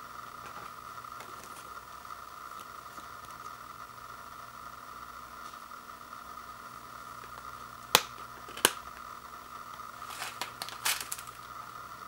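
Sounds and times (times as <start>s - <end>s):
plastic rattles: 10.0s - 11.4s.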